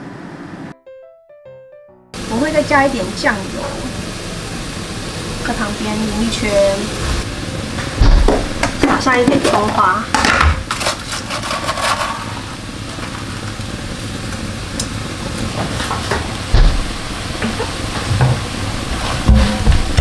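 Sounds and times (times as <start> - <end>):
food sizzling in a wok: 2.2 - 7.8
low bump: 15.5 - 20.0.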